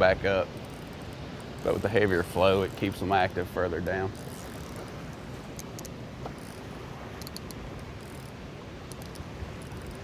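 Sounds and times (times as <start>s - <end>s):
rushing water below dam: 0.0s - 10.0s
fishing reel clicking: 4.2s - 4.8s, 7.2s - 10.0s.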